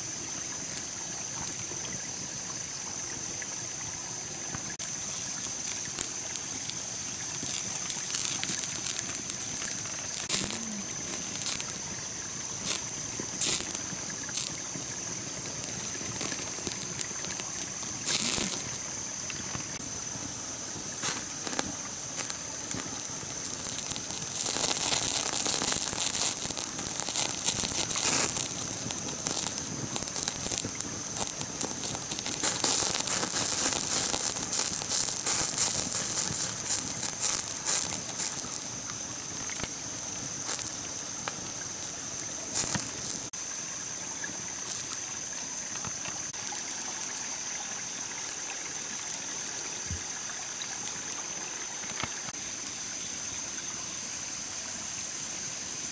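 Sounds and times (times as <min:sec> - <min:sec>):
wood fire crackling and hissing: 0:00.0 - 0:55.9.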